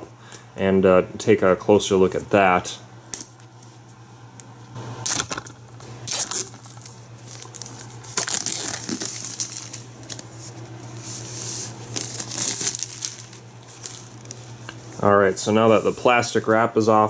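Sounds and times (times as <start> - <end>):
plastic wrap crinkling and tearing: 5.1 - 14.6.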